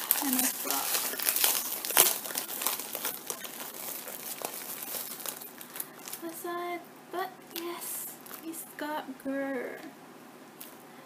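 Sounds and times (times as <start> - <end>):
foil and plastic crinkling: 0.0 - 6.4, 7.6 - 8.7
woman vocal sounds: 6.0 - 9.9.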